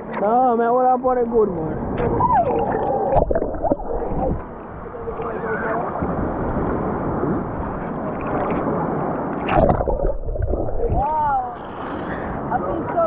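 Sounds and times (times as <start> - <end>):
rough sea surf roaring: 1.7 - 13.0.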